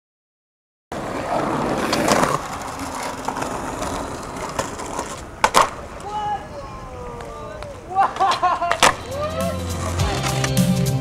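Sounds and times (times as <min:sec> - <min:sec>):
skateboard wheels rolling on concrete: 0:00.9 - 0:11.0
skateboard scraping on concrete ledge: 0:01.0 - 0:06.0, 0:08.2 - 0:11.0
skateboard clacks: 0:01.0 - 0:06.3, 0:07.2 - 0:11.0.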